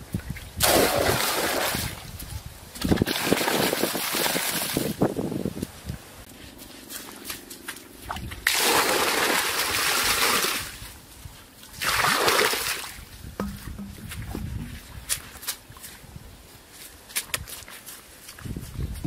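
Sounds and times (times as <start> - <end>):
water pouring into muddy pool: 0.6 - 2.0, 2.8 - 5.0, 8.1 - 10.9, 11.8 - 13.0.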